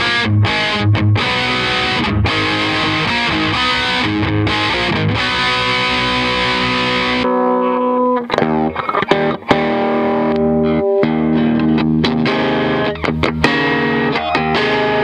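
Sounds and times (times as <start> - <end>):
distorted electric guitar: 0.0 - 15.0.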